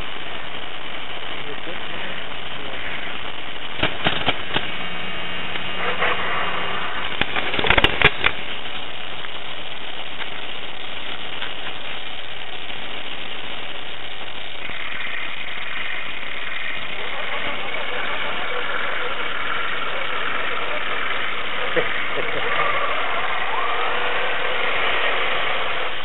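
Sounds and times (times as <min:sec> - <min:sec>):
sharp clicks and knocks: 0:03.7 - 0:04.8, 0:07.1 - 0:09.4.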